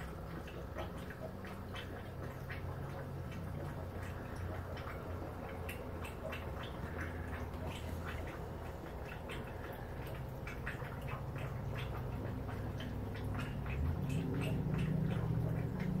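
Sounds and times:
faint clicks and ticks: 0:00.0 - 0:16.0
low steady hum: 0:00.0 - 0:16.0.

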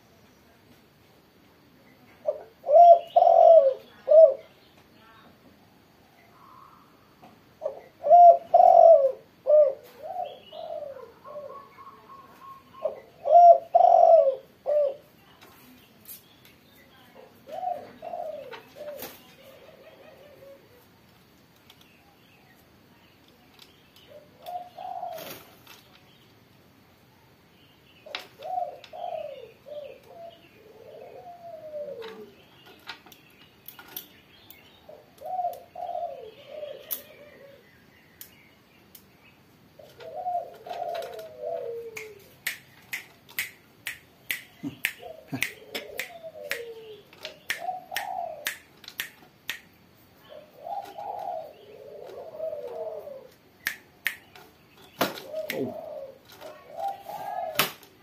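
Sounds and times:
dove cooing: 0:02.2 - 0:04.5, 0:06.4 - 0:15.1, 0:17.3 - 0:21.0, 0:24.1 - 0:25.6, 0:28.0 - 0:32.5, 0:34.8 - 0:37.8, 0:39.7 - 0:42.4, 0:44.5 - 0:48.7, 0:50.2 - 0:53.5, 0:55.0 - 0:58.0
sharp clicks and taps: 0:42.0 - 0:49.7.

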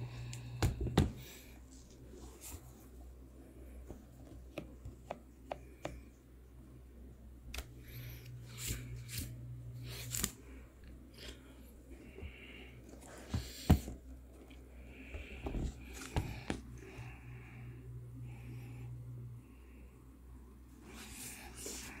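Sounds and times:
soft rubbing and rustling: 0:01.6 - 0:04.5, 0:20.8 - 0:22.0.

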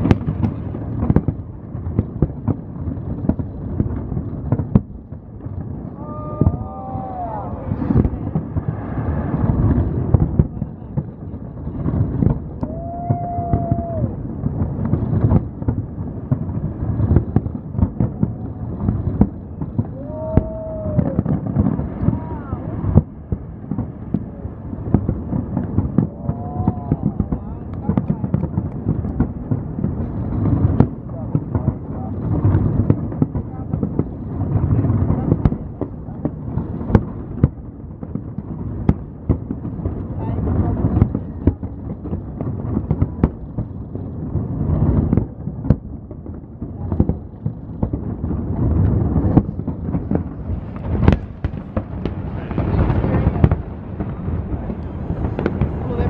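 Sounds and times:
low rumble: 0:00.0 - 0:37.8
fireworks bangs and crackles: 0:00.0 - 0:56.0
whistling firework: 0:00.0 - 0:56.0.

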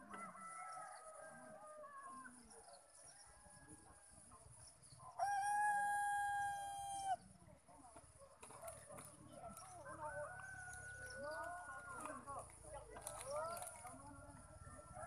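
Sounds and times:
rooster crowing: 0:05.2 - 0:07.2.

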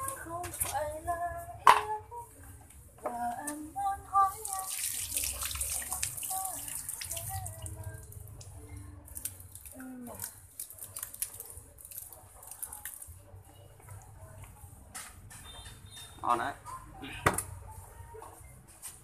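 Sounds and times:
wet mash dripping: 0:04.3 - 0:14.1.

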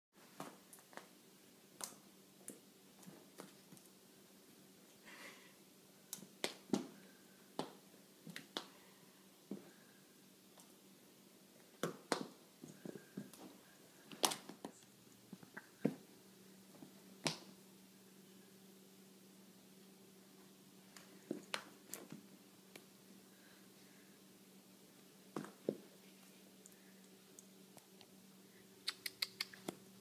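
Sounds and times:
faint steady hum: 0:00.2 - 0:30.0.

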